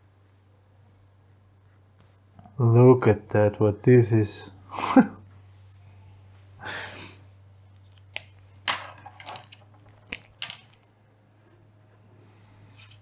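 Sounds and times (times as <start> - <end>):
soft rustle: 1.6 - 2.4, 5.3 - 6.6.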